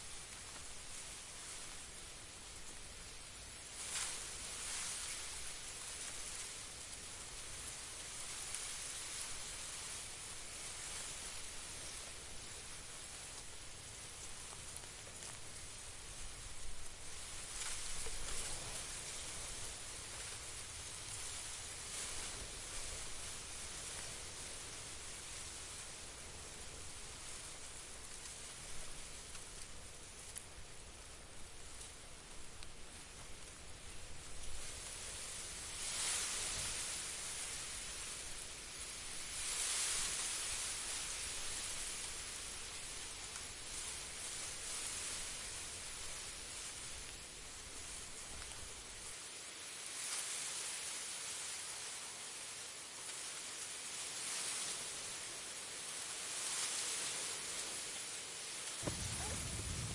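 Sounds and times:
outdoor hiss: 0.0 - 59.9
wind rustling through tall grass: 0.0 - 59.9
low fluctuating rumble: 58.8 - 59.9.

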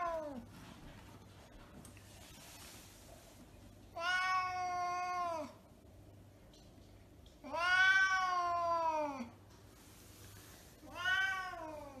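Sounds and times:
cat meowing: 7.4 - 9.3, 10.8 - 12.0.

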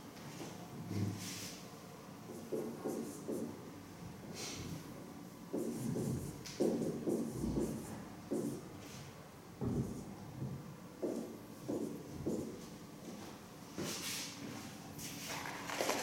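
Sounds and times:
marker writing on whiteboard: 2.3 - 3.6, 5.5 - 8.6, 11.0 - 12.6.

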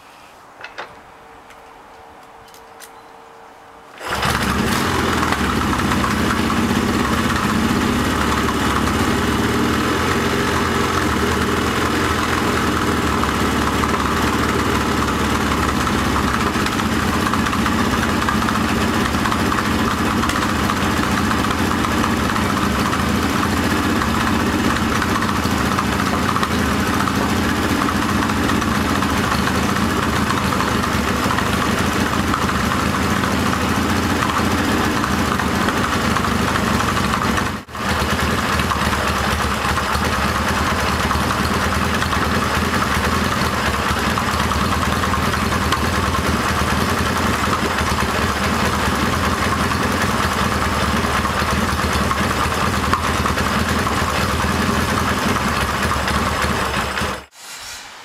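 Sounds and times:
motorcycle engine starting and running: 3.9 - 57.3.

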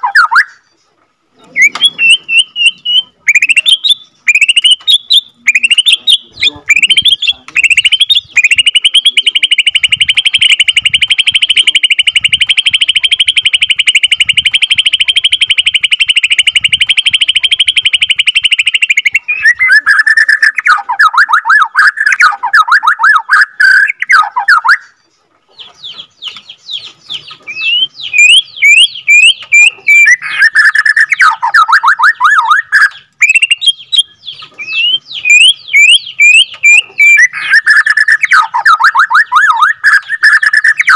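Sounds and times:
falling bird notes: 0.0 - 25.0
bird singing rapid trill: 0.0 - 40.9
sharp whistled bird notes: 1.5 - 25.0, 25.8 - 40.9.

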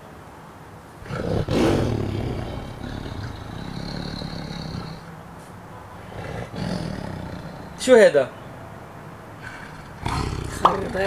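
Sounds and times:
tiger roaring from phone speaker: 1.0 - 5.2, 6.0 - 7.8, 9.4 - 11.0.

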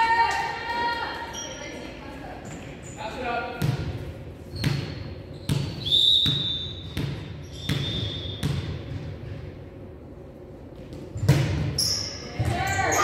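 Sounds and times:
shoe squeaks: 1.3 - 1.9, 4.5 - 8.5, 11.8 - 13.0
basketball bouncing: 3.6 - 9.4, 10.8 - 11.8.

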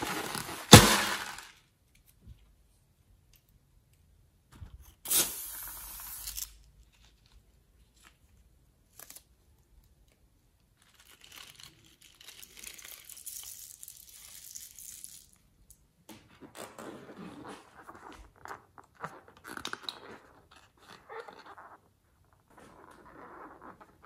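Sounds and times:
balloon crinkling: 0.0 - 1.7, 16.3 - 24.0.

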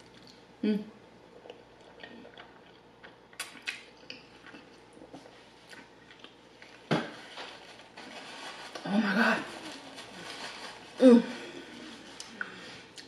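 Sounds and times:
chewing with wet mouth clicks: 1.4 - 6.7.

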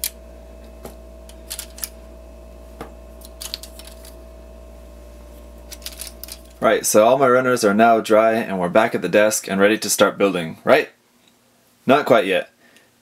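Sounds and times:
faint steady hum: 0.0 - 13.0
plastic pieces clicking together: 1.5 - 1.9, 3.3 - 4.1, 5.7 - 6.5.

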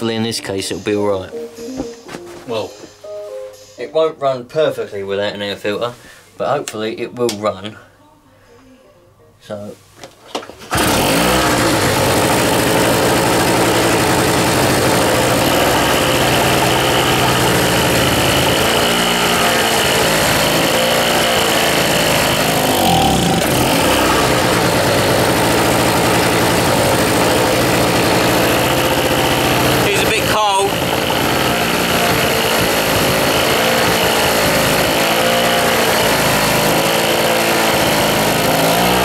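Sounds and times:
two-stroke generator engine running: 10.7 - 39.0.

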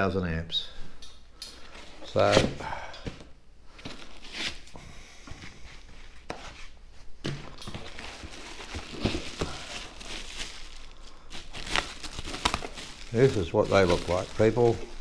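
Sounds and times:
bubble wrap crinkling: 7.6 - 15.0.

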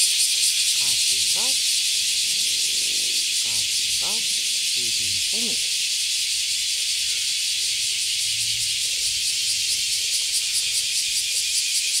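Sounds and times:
cicadas shrilling: 0.0 - 12.0.

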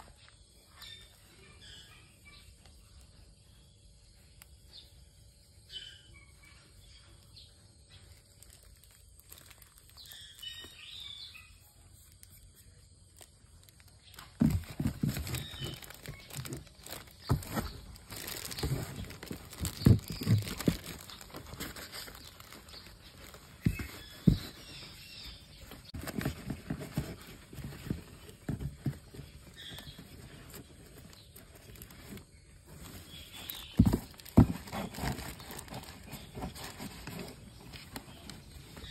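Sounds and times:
paper and packing rustling: 8.1 - 10.9, 13.2 - 38.9.

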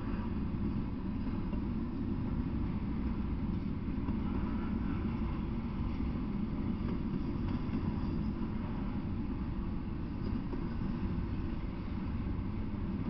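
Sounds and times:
freight train wheels rumbling: 0.0 - 13.0.

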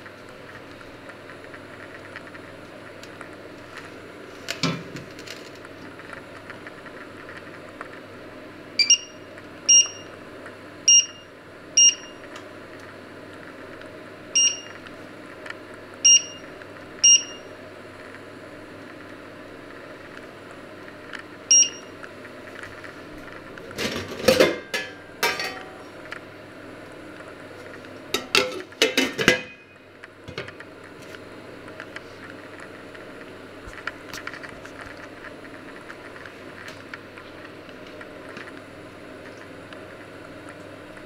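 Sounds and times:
faint steady hum: 0.0 - 41.0
cooktop touch control beeps: 8.8 - 10.2, 10.9 - 12.2, 14.4 - 14.8, 16.0 - 17.6, 21.5 - 22.0.

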